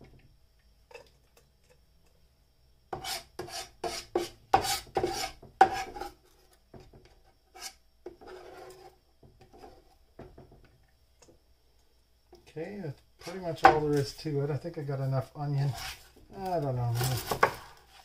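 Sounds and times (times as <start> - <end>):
knife scraping on cutting mat: 2.9 - 6.6, 7.5 - 10.0, 15.6 - 18.0.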